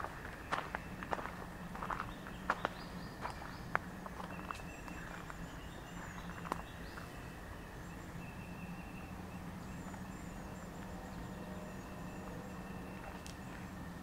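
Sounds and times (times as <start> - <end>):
footstep on gravel: 0.0 - 7.1
low hum: 0.0 - 14.0
songbirds chirping: 0.0 - 14.0.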